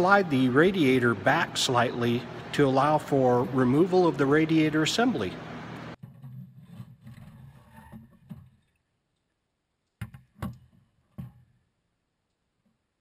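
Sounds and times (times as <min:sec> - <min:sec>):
radiator scraping and rubbing: 0:06.0 - 0:08.5.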